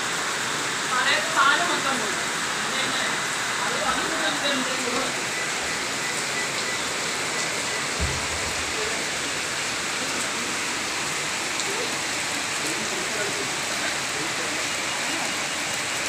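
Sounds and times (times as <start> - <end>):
rushing floodwater: 0.0 - 16.0
low thump: 8.0 - 9.1.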